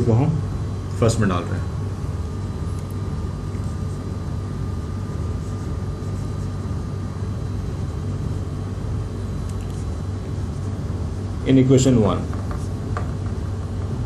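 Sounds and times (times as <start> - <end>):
room hum and rumble: 0.0 - 14.0
marker scratching on whiteboard: 5.1 - 6.9, 12.2 - 13.9.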